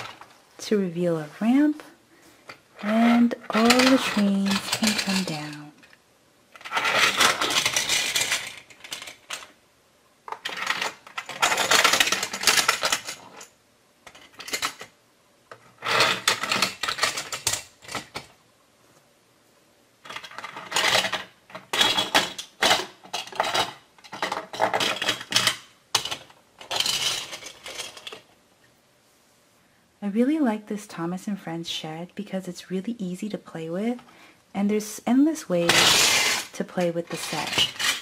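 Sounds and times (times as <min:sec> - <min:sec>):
metal toy trains rattling on tracks: 0:02.8 - 0:05.8, 0:06.6 - 0:09.5, 0:10.4 - 0:13.5, 0:35.6 - 0:38.0.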